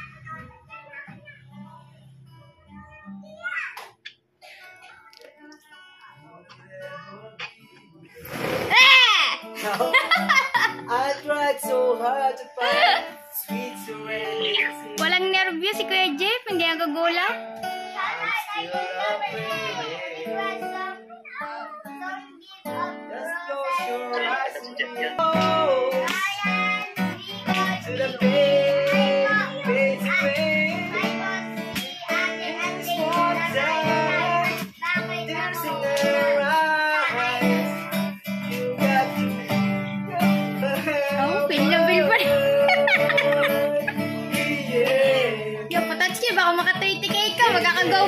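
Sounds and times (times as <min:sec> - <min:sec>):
acoustic guitar strumming: 0:00.0 - 0:48.0
man singing: 0:05.4 - 0:08.1, 0:09.6 - 0:15.1, 0:17.9 - 0:21.4, 0:22.0 - 0:46.2, 0:47.0 - 0:48.0.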